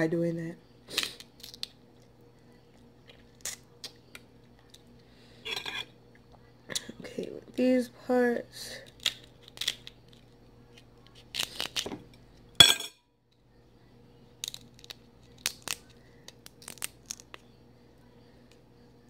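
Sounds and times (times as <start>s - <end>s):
crab shell cracking: 1.0s - 1.8s, 8.8s - 10.4s, 11.1s - 11.9s, 14.4s - 17.4s.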